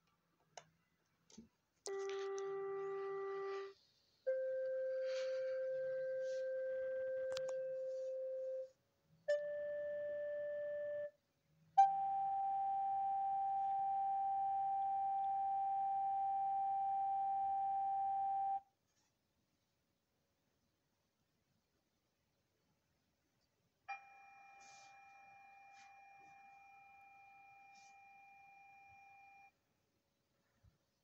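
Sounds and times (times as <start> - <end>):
long electronic tones: 1.9 - 3.7, 4.3 - 8.7.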